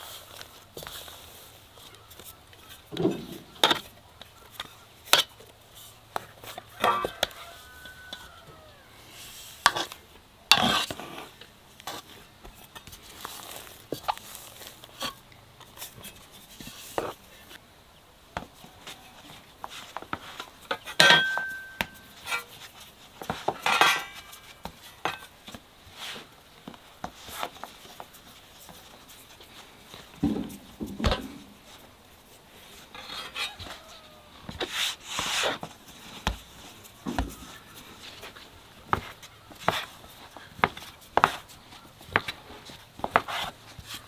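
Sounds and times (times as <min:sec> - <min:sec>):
clink and short ring: 0:21.0 - 0:22.1
dull thumps: 0:30.1 - 0:31.7, 0:35.6 - 0:37.7
dough knocks and rustles on board: 0:34.5 - 0:37.7.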